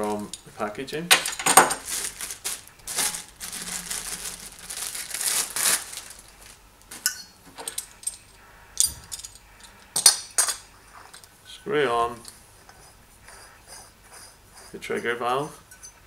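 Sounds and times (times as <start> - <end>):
plastic packaging crinkling: 1.1 - 7.1
small metal parts clicking: 7.6 - 9.8.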